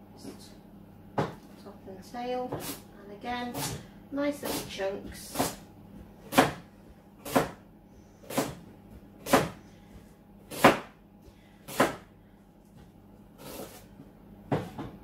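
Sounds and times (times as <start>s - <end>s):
knife chopping on board: 2.5s - 2.8s, 3.5s - 3.8s, 4.4s - 7.6s, 8.2s - 9.6s, 10.5s - 11.0s, 11.7s - 12.1s.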